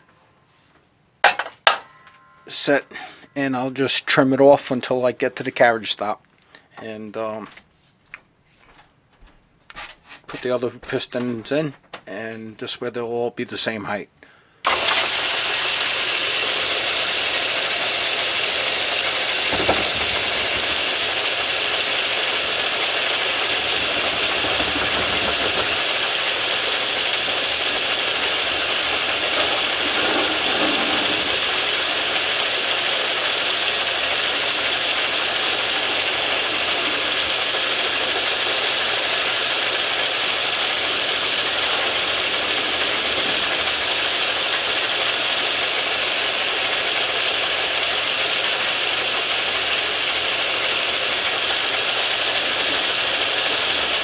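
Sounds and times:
lathe drive rattling: 0:14.7 - 0:54.0
metal lathe whining: 0:14.7 - 0:54.0.

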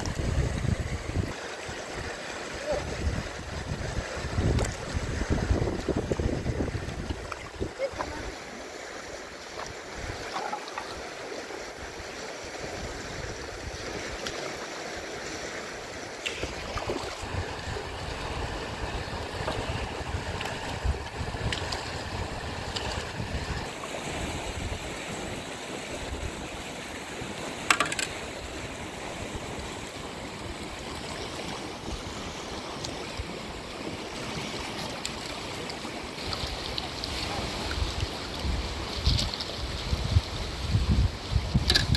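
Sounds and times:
wind buffeting microphone: 0:00.0 - 0:01.4, 0:02.7 - 0:08.3, 0:16.4 - 0:25.4, 0:37.5 - 0:41.9
river water rushing over stones: 0:00.0 - 0:41.9
sharp knocks: 0:27.7 - 0:28.2.

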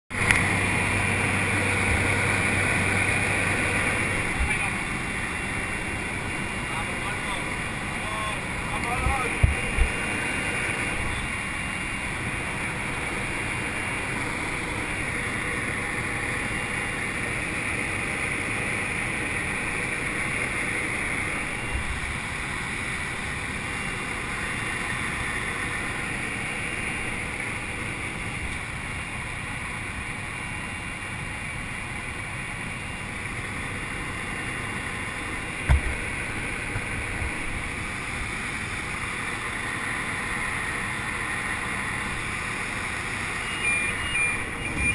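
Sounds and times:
plane engine and propeller drone: 0:00.1 - 0:44.9
low thump: 0:35.6 - 0:36.0.

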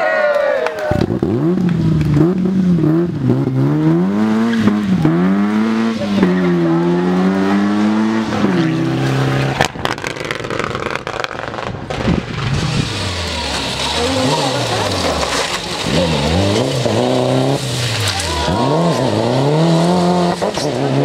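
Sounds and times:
rough car noise: 0:00.8 - 0:21.0
rally car engine revving: 0:01.0 - 0:21.0
sharp cracks: 0:09.4 - 0:16.0.

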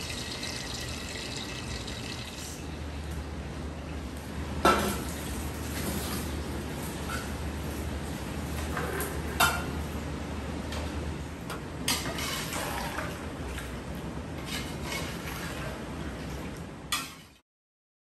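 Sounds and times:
metal spoon scraping a pot: 0:11.9 - 0:13.0, 0:14.4 - 0:15.2.

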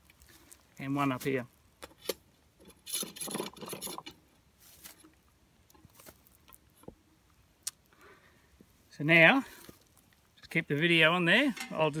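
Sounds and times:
metal rod scraping in metal post: 0:02.0 - 0:04.2.

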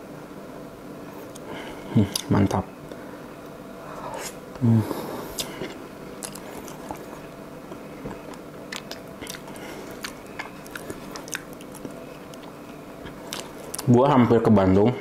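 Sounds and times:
faint steady hum: 0:00.0 - 0:15.0
person chewing: 0:04.1 - 0:13.9.

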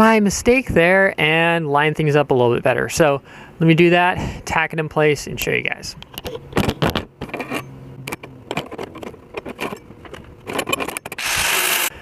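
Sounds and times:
metal clinks knocks and scrapes: 0:06.3 - 0:11.2.

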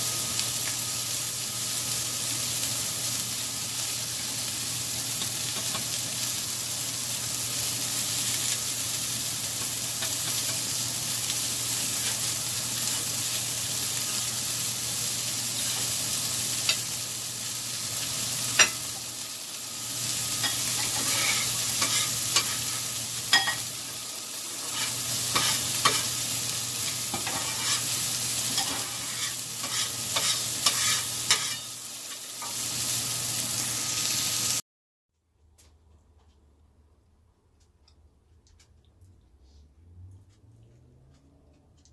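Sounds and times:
food sizzling on a griddle: 0:00.0 - 0:34.6
metal spatula scraping griddle: 0:20.4 - 0:23.6, 0:24.5 - 0:26.2, 0:26.8 - 0:31.7.

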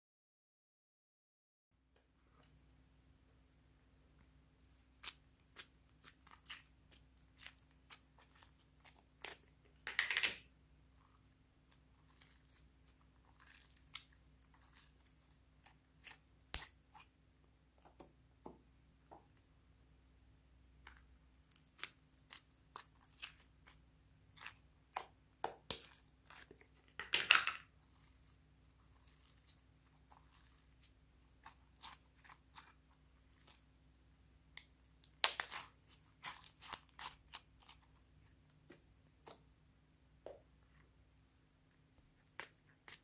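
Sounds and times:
slime squelching stretch: 0:04.6 - 0:09.8, 0:10.8 - 0:17.2, 0:21.4 - 0:27.0, 0:27.7 - 0:39.5.

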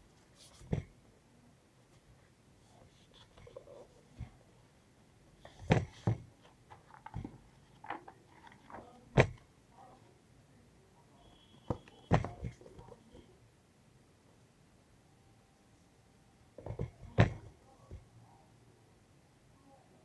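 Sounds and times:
book cover taps and knocks: 0:00.6 - 0:00.9, 0:05.4 - 0:08.0, 0:09.1 - 0:09.4, 0:11.7 - 0:12.6, 0:16.6 - 0:17.5
book pages turning: 0:05.4 - 0:09.4.

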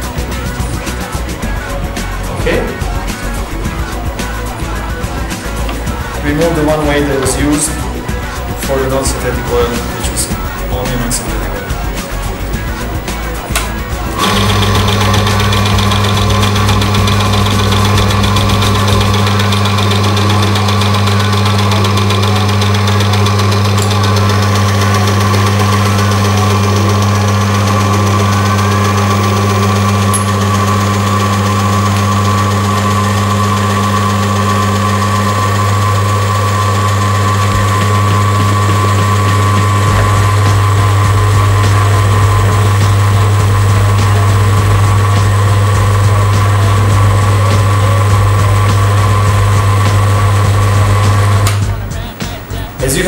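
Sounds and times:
electric motor humming: 0:00.0 - 0:53.0.

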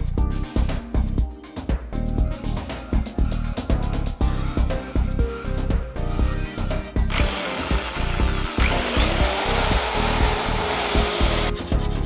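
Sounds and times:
background music with steady beat: 0:00.0 - 0:12.0
power tool cutting plastic: 0:05.5 - 0:11.7.

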